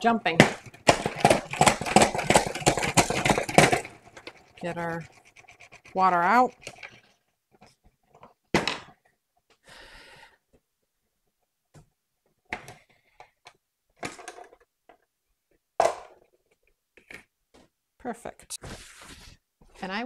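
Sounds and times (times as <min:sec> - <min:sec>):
knocks and thuds on plastic: 0:00.3 - 0:04.3.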